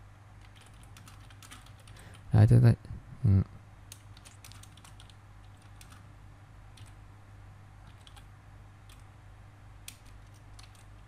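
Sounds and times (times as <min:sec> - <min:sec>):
steady low hum: 0:00.0 - 0:11.0
keyboard keystrokes: 0:00.4 - 0:02.0, 0:03.9 - 0:06.0, 0:06.8 - 0:07.0, 0:07.8 - 0:08.3, 0:08.9 - 0:09.1, 0:09.8 - 0:11.0.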